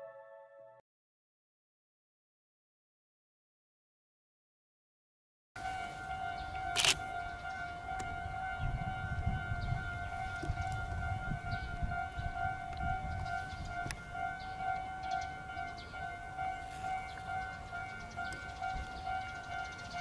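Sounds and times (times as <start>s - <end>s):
level-crossing alarm ringing: 5.6s - 20.0s.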